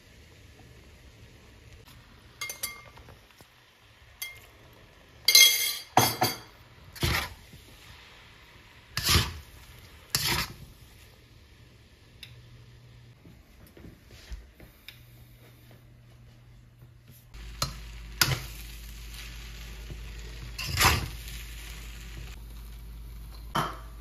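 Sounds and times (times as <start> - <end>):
metal spatula scraping a wok: 6.9 - 7.4, 8.9 - 10.7, 20.6 - 21.3.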